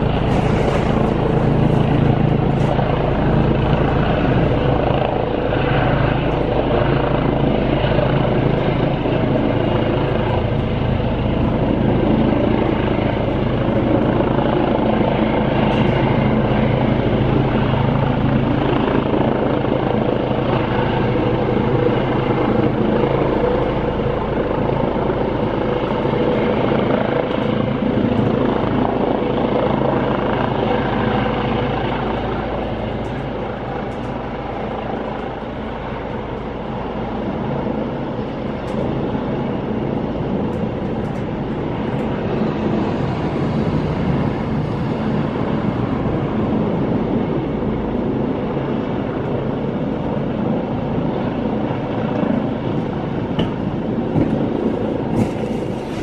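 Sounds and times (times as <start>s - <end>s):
helicopter rotor and turbine drone: 0.0s - 56.0s.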